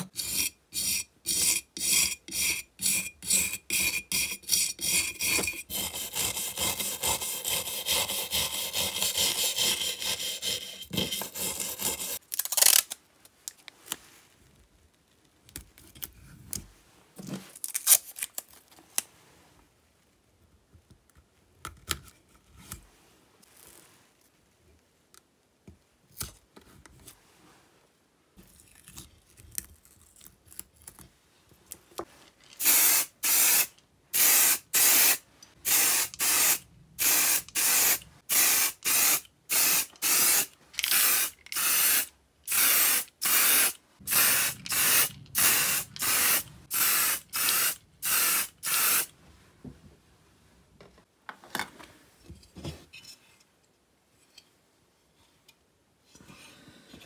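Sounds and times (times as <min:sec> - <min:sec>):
spray paint can hissing: 0:07.9 - 0:12.2, 0:32.6 - 0:49.1.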